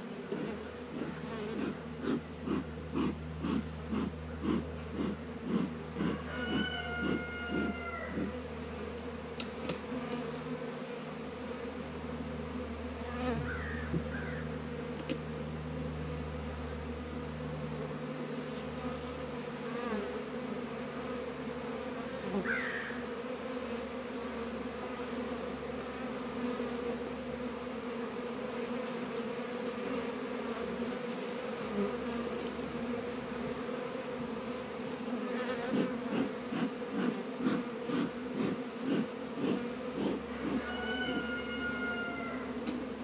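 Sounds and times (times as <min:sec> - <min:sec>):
honey bees buzzing: 0:00.0 - 0:43.0
bee smoker bellows puffs: 0:00.2 - 0:10.4, 0:28.9 - 0:41.2.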